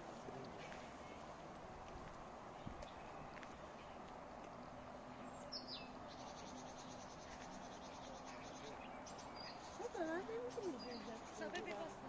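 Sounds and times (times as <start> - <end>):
garden background noise: 0.0 - 12.0
songbird calls and trills: 2.2 - 12.0.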